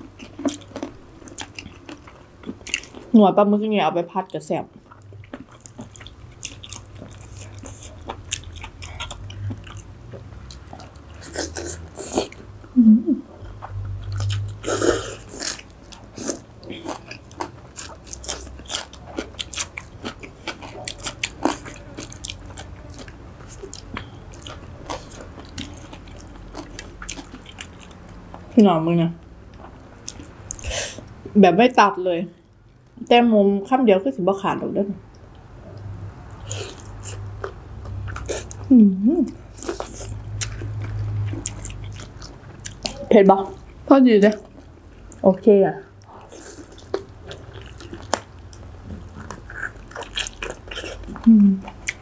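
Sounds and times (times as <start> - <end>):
wet chewing and crunching: 0.0 - 3.2, 4.2 - 12.6, 13.4 - 28.6, 29.5 - 31.2, 35.1 - 38.7, 39.3 - 45.2, 45.9 - 52.0
person humming: 12.8 - 13.3, 51.2 - 51.6.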